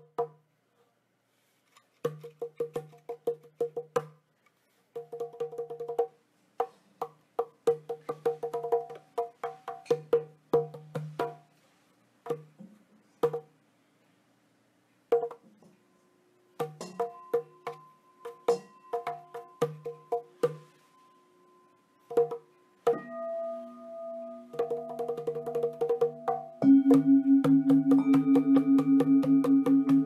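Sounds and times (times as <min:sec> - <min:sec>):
wooden percussion knocks: 0:22.1 - 0:23.1, 0:24.5 - 0:30.0.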